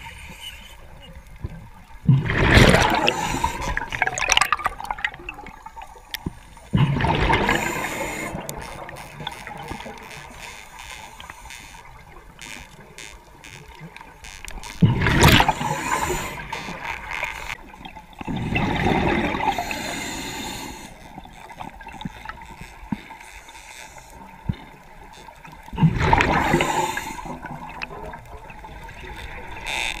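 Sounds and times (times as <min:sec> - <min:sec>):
bubbles gurgling underwater: 0:02.0 - 0:05.9, 0:06.7 - 0:10.0, 0:17.8 - 0:19.6.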